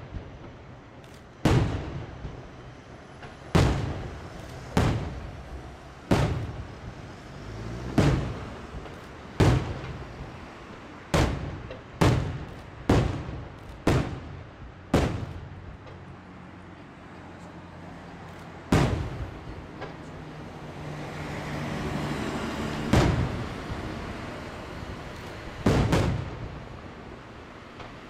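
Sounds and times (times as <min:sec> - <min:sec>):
firework shells bursting with echo: 0:00.0 - 0:07.2, 0:07.8 - 0:16.0, 0:18.7 - 0:20.1, 0:22.9 - 0:24.0, 0:24.8 - 0:28.0.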